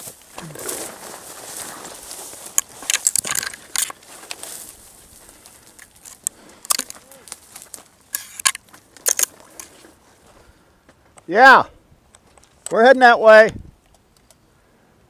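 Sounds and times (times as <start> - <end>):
twigs scraping and snapping: 0.0 - 10.0
footsteps crunching on stony ground: 0.0 - 11.3.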